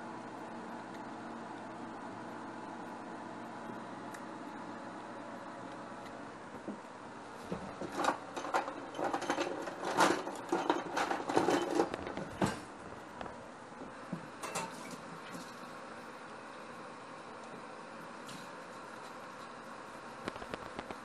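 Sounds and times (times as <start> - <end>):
utensils clattering in drawer: 7.8 - 12.6.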